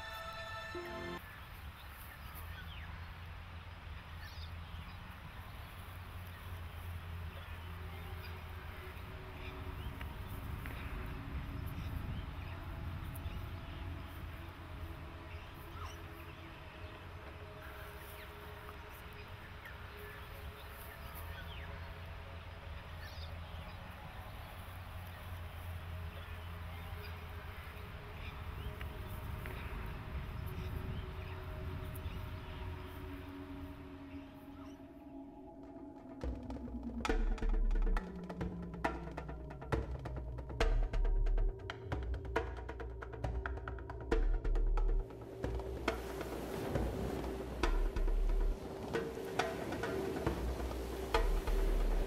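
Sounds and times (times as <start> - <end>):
steady low rumble: 2.8 - 20.0, 20.9 - 52.0
faint bird chirps: 15.2 - 38.2.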